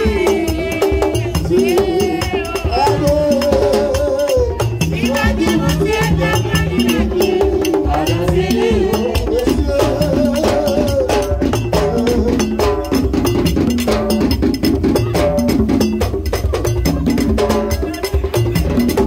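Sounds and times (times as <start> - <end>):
voices singing a chant: 0.0 - 13.3
hand drums: 0.0 - 19.0.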